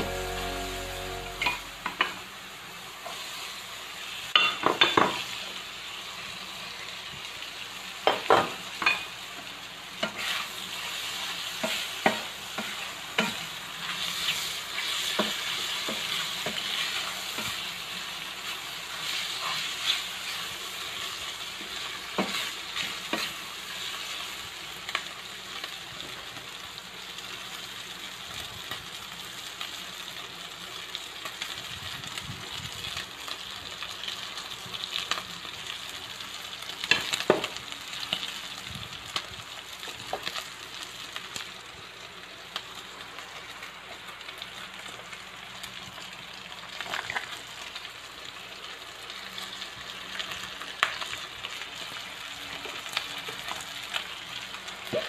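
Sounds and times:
food sizzling in a frying pan: 0:00.0 - 0:55.0
spatula scraping a pan: 0:10.0 - 0:17.7.

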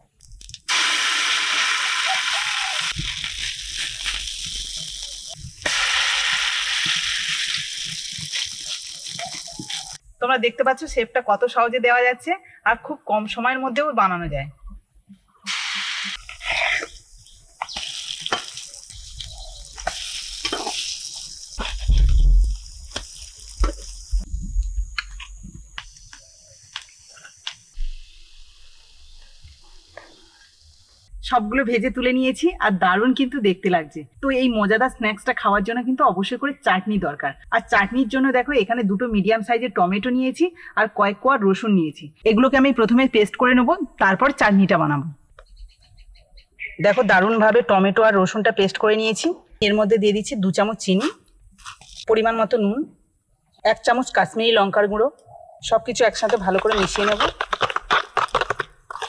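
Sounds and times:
patties sizzling in hot oil: 0:00.4 - 0:10.0, 0:15.5 - 0:31.0.

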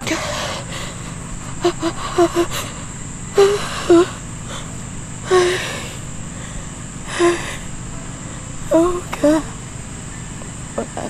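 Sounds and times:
woman sobbing: 0:00.0 - 0:04.7, 0:05.3 - 0:06.0, 0:07.1 - 0:07.7.

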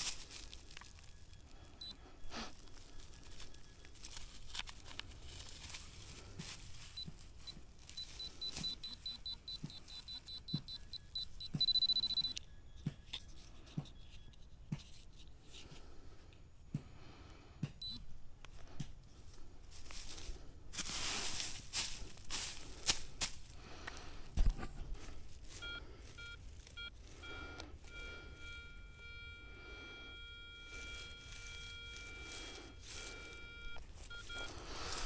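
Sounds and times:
metal detector beeping: 0:00.0 - 0:14.4, 0:17.8 - 0:18.1, 0:24.6 - 0:35.0.

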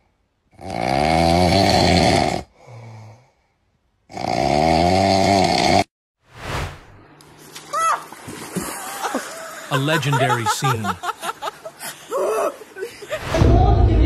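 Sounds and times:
man snoring loudly: 0:00.5 - 0:03.3, 0:04.1 - 0:05.9
quiet breath: 0:02.5 - 0:03.8.

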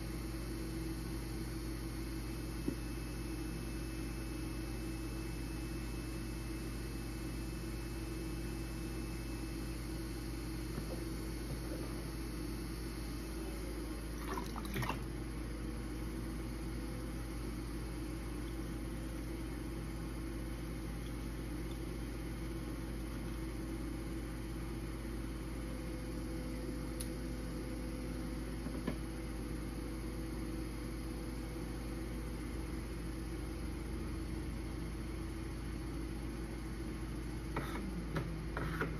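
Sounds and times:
potter's wheel humming: 0:00.0 - 0:38.9
click: 0:27.0 - 0:27.2.

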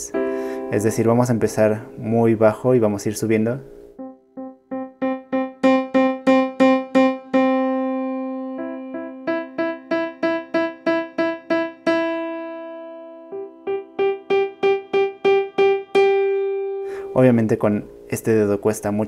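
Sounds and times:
digital piano notes repeated: 0:00.0 - 0:19.0.

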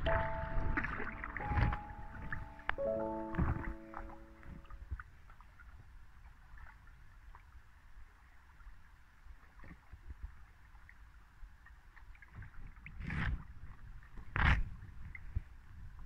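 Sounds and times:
paddle splashing in water: 0:00.0 - 0:07.6.

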